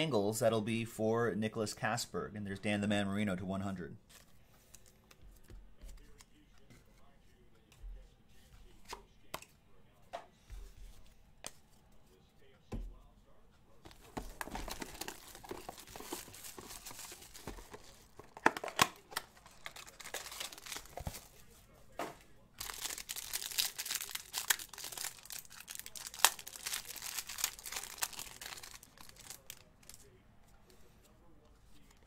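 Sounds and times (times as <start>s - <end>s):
plastic wrapping crinkling and tearing: 13.9s - 21.4s, 22.6s - 30.2s.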